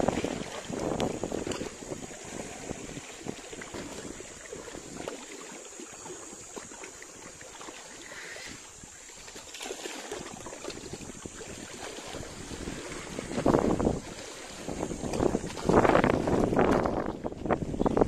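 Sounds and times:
wind buffeting microphone: 0.0s - 5.1s, 10.2s - 18.0s
sea water washing among rocks: 0.0s - 18.0s.

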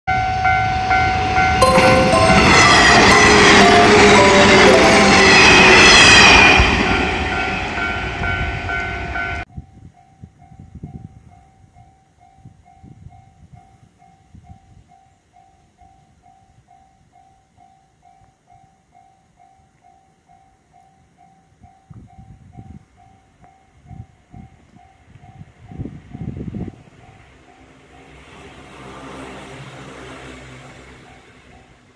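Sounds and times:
electric train passing: 0.1s - 9.4s, 25.0s - 31.9s
level-crossing warning bell: 0.1s - 28.3s.

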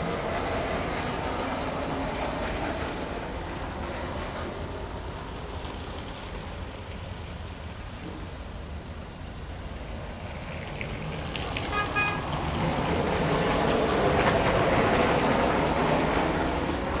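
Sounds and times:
low traffic rumble: 0.0s - 17.0s
vehicle passing: 10.2s - 17.0s
short horn toot: 11.7s - 12.2s.

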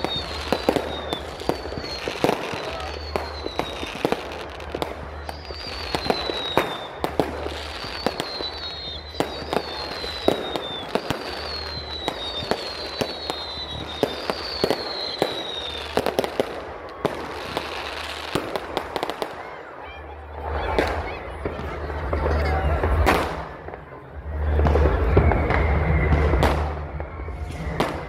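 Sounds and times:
high falling firework whistle: 0.0s - 19.6s, 22.9s - 28.0s
fireworks bangs and bursts: 0.0s - 28.0s.

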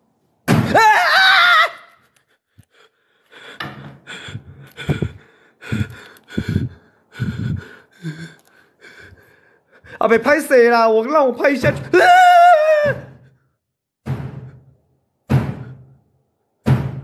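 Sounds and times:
person screaming in fright: 0.6s - 2.1s, 11.8s - 13.2s
heavy panting breaths: 2.4s - 10.0s.

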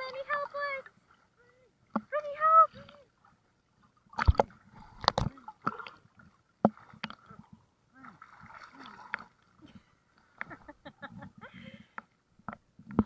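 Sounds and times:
water slapping and gurgling: 0.0s - 13.0s
waves knocking camera: 4.2s - 5.4s.

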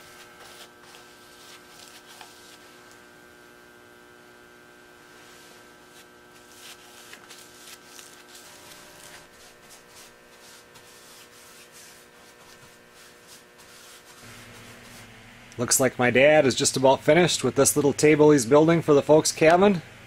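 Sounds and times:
paintbrush strokes on wood: 0.0s - 3.0s, 5.0s - 15.2s
faint steady hum: 0.0s - 20.0s.

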